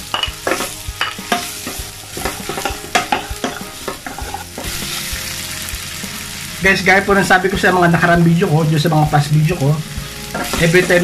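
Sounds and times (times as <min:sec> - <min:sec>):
potato sticks sizzling in oil: 0:00.0 - 0:11.0
wooden spatula scraping a pan: 0:00.1 - 0:05.2.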